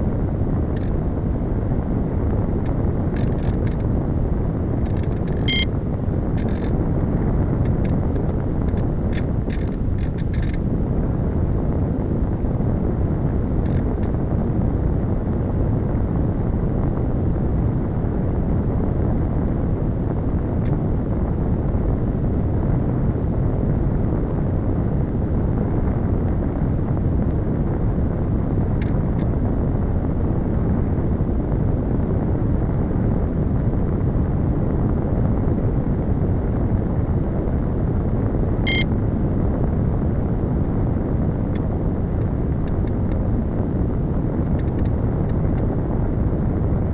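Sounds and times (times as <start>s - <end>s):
wind rushing over microphone: 0.0s - 46.9s.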